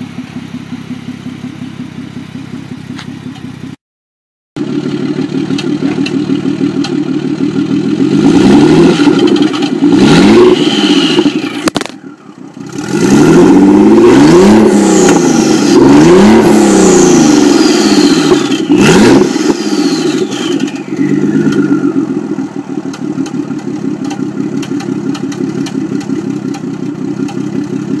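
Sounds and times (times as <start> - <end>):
lumpy engine idle with ticking: 0.0 - 3.8, 4.6 - 8.2, 11.1 - 12.8, 20.0 - 28.0
car engine revving: 4.6 - 28.0
turbo whistle: 16.9 - 22.3.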